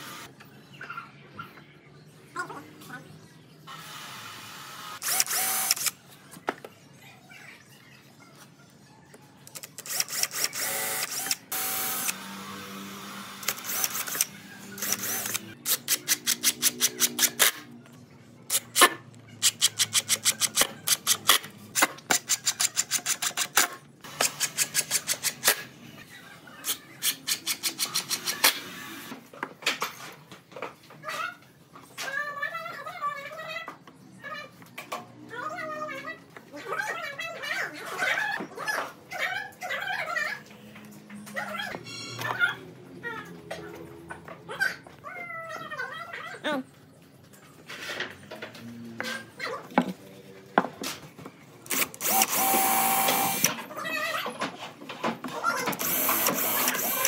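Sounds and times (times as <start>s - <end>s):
impact driver driving screws: 5.0s - 5.9s, 9.8s - 17.6s, 51.7s - 53.6s, 55.7s - 57.0s.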